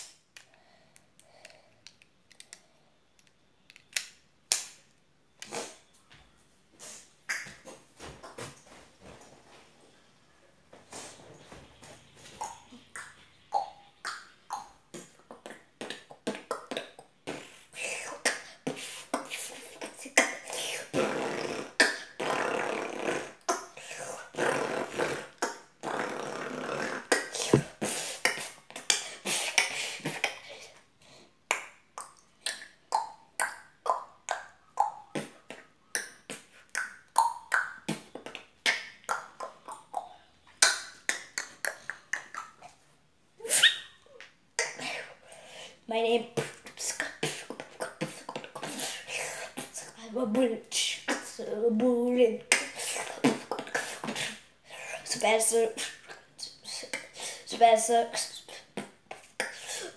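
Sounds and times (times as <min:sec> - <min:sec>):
vocal beatboxing: 0:12.4 - 0:30.6, 0:31.5 - 0:42.8, 0:46.2 - 0:51.5, 0:52.2 - 0:59.9.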